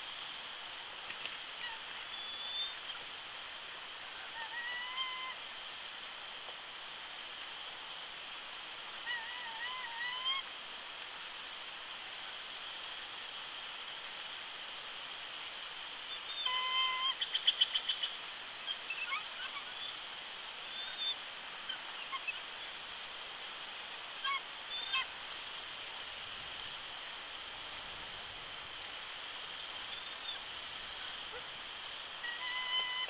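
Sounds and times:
steady background hiss: 0.0 - 33.0
eagle calling: 16.4 - 18.1, 32.2 - 33.0.

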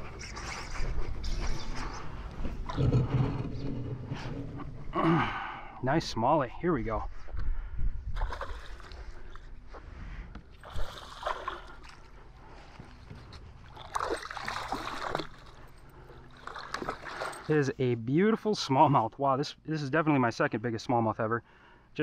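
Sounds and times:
fish splashing at water surface: 13.8 - 15.5.

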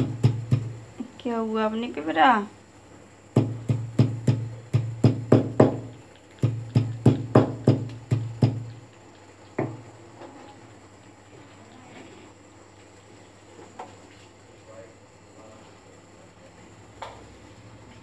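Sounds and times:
heavy knocking strikes pounding ginger: 0.0 - 0.8, 3.3 - 8.7.

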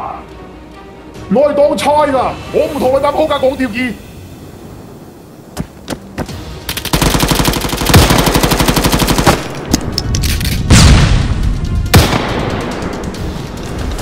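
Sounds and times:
automatic gunfire bursts: 6.9 - 9.5
heavy echoing blasts: 10.7 - 14.0.

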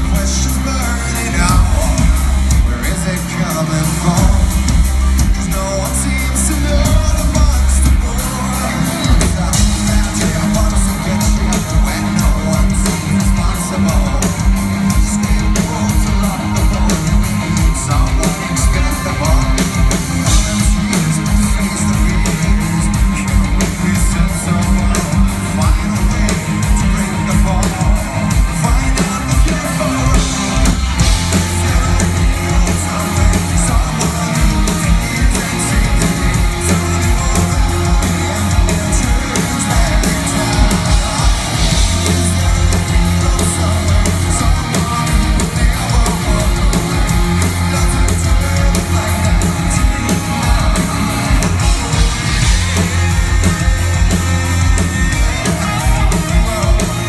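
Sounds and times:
live rock band playing: 0.0 - 57.0
man singing lead vocals: 0.0 - 57.0.

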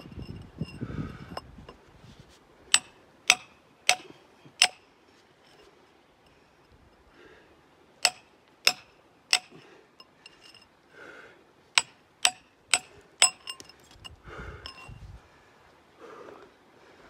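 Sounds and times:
steel bar striking rock: 2.7 - 4.9, 8.0 - 10.6, 11.8 - 15.0.

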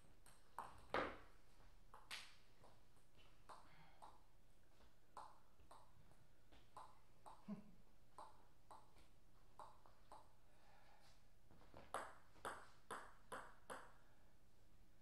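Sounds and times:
table tennis ball bouncing: 0.0 - 1.3, 5.2 - 7.5, 8.1 - 10.4, 11.8 - 14.1.

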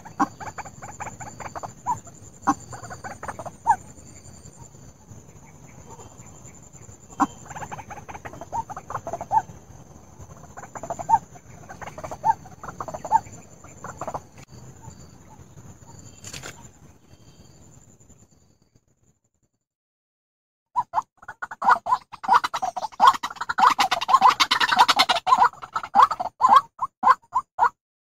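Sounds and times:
waterhen calling: 0.0 - 3.8, 7.1 - 9.5, 10.3 - 14.4, 20.8 - 27.7.

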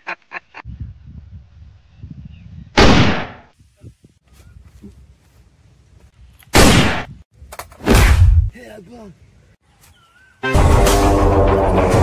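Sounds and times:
gunshot: 2.8 - 3.5, 6.5 - 7.1, 7.8 - 8.5.

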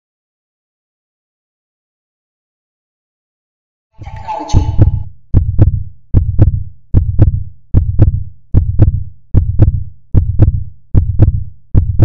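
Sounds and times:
heartbeat thumps: 4.0 - 12.0.

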